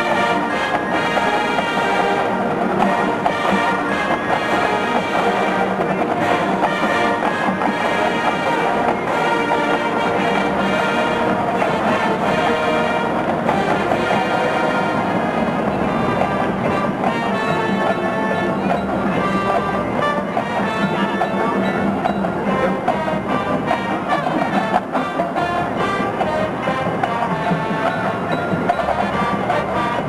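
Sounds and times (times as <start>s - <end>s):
brass chords: 0.0s - 30.0s
marching band playing: 0.0s - 30.0s.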